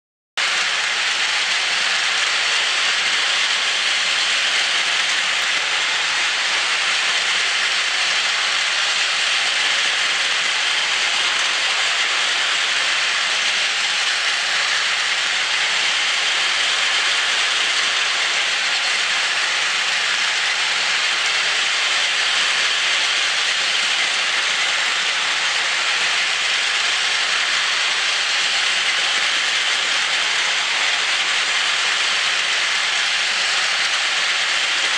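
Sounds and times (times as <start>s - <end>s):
toy trains whirring on plastic track: 0.4s - 34.9s.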